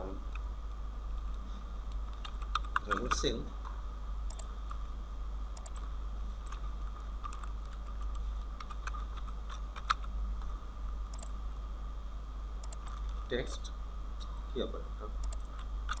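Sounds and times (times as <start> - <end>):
steady low hum: 0.0 - 16.0
computer keyboard and mouse clicks: 2.0 - 3.3, 4.3 - 4.8, 5.6 - 10.1, 11.1 - 11.3, 12.6 - 13.1, 15.2 - 16.0.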